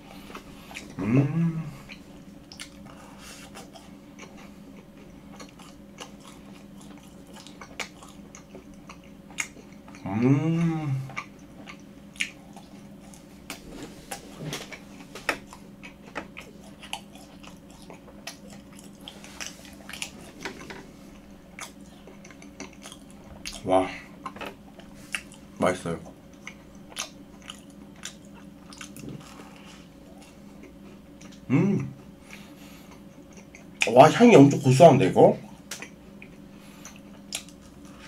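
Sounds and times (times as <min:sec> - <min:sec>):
hum rising and falling: 0:00.0 - 0:03.1, 0:09.9 - 0:11.2
chewing: 0:01.8 - 0:10.1, 0:11.0 - 0:33.9, 0:35.4 - 0:38.0.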